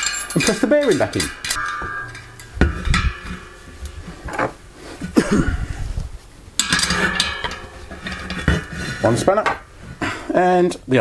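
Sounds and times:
metal tools clinking and knocking: 0:00.0 - 0:05.2, 0:06.6 - 0:09.8
ringing metallic clatter: 0:00.0 - 0:05.2, 0:06.6 - 0:09.9.

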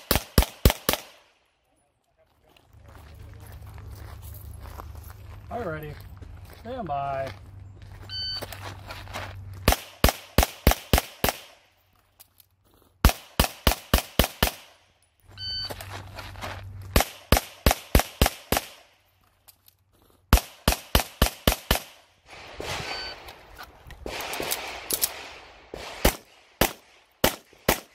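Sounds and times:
pistol shots: 0:00.0 - 0:01.4, 0:09.6 - 0:11.6, 0:13.0 - 0:14.8, 0:16.9 - 0:18.9, 0:20.3 - 0:27.9.

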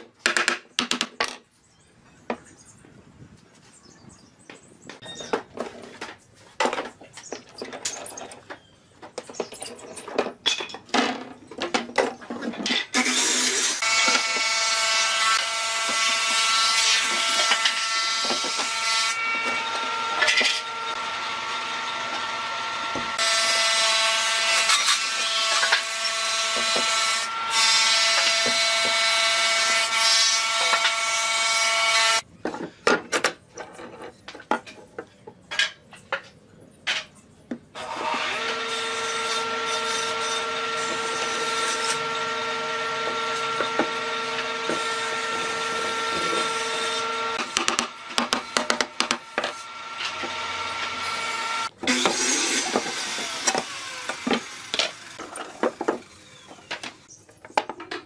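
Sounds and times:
electric power tool whining: 0:19.3 - 0:24.0, 0:37.8 - 0:57.1.

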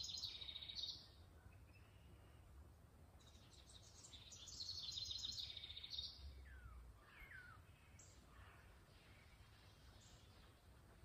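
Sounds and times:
birds chirping and whistling: 0:00.0 - 0:01.1, 0:03.2 - 0:08.3.

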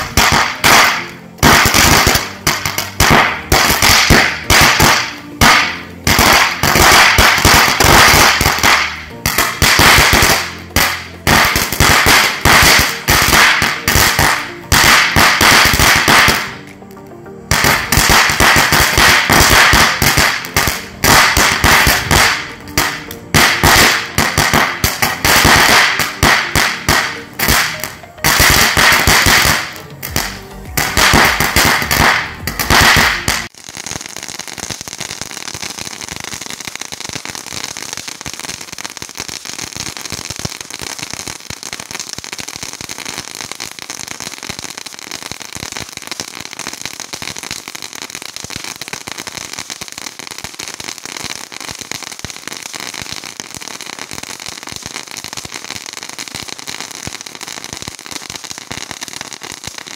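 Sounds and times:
crackling fountain firework: 0:00.0 - 0:59.9.

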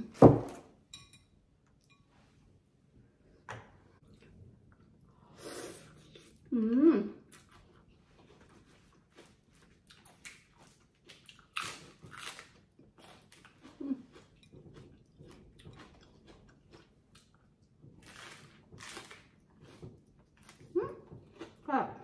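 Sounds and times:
person chewing noodle soup: 0:04.0 - 0:06.5, 0:07.2 - 0:21.6.

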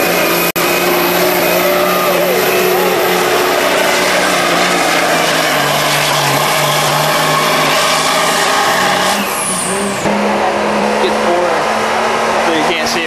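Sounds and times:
diesel truck engine full throttle: 0:00.0 - 0:13.0
high whistle falling in pitch: 0:00.9 - 0:07.8.

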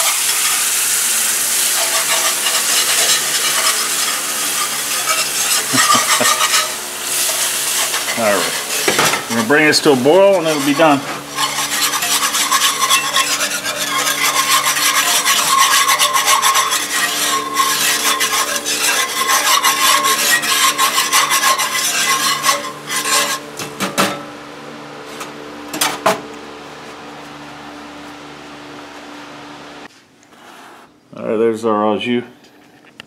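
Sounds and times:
whisk clinking: 0:00.0 - 0:23.4
metal whisk scraping skillet: 0:00.0 - 0:24.2
steady hum: 0:00.0 - 0:30.3.

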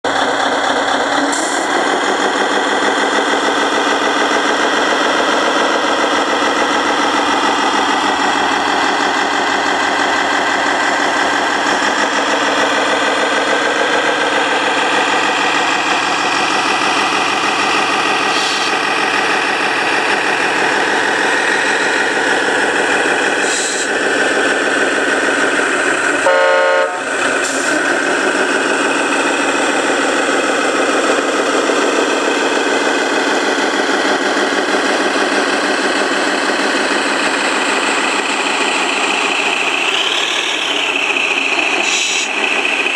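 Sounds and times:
model truck engine drone: 0:00.0 - 0:42.9
short horn honk: 0:26.2 - 0:27.1.

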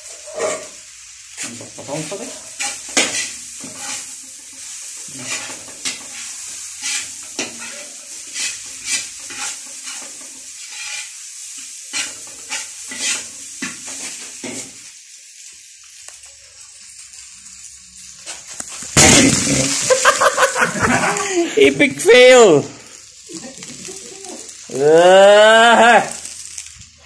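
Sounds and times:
seafood sizzling in a wok: 0:00.0 - 0:27.0
spatula scraping and knocking pan: 0:02.6 - 0:14.8.

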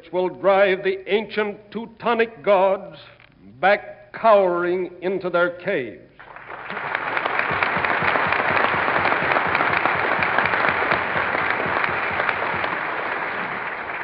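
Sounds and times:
audience applauding: 0:06.2 - 0:14.0.

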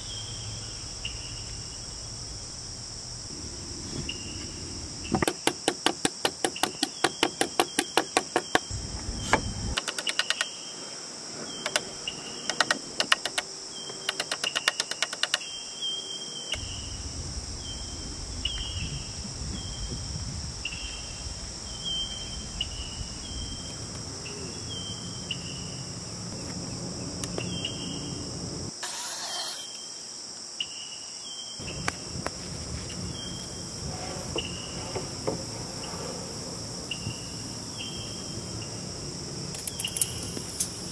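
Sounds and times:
insects trilling: 0:00.0 - 0:40.9
hammer striking nails: 0:05.1 - 0:08.7, 0:09.8 - 0:10.4, 0:12.5 - 0:15.4.

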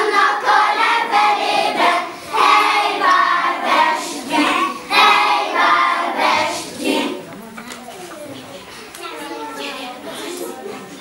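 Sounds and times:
young children singing: 0:00.0 - 0:07.3.

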